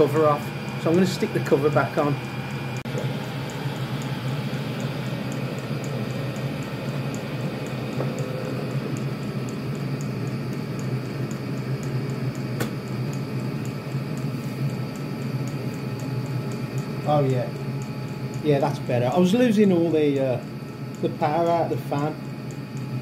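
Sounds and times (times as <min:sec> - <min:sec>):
heater fan and burner roar: 0:00.0 - 0:23.0
sharp click: 0:10.8 - 0:13.2.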